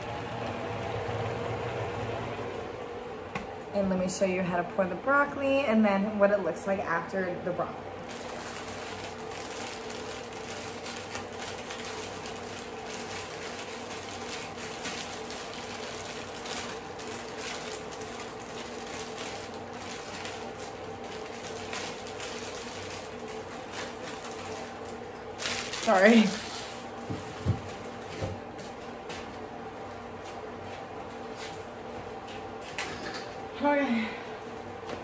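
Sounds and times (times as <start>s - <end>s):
low even hum: 0.0s - 35.0s.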